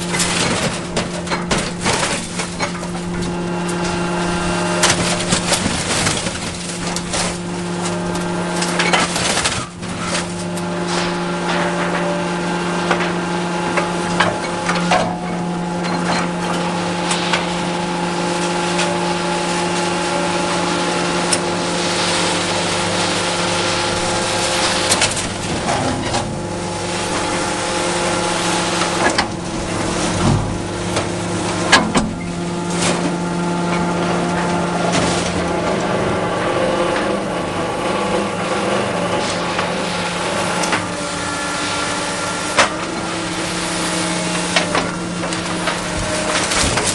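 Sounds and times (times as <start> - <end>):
metal clanking on metal: 0.0 - 36.0
excavator diesel engine running: 0.0 - 46.9.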